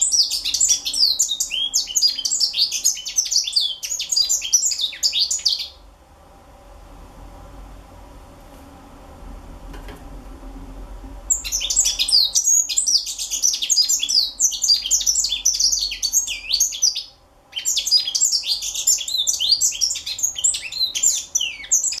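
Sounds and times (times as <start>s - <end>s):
bird twittering song: 0.0s - 5.8s, 11.3s - 22.0s.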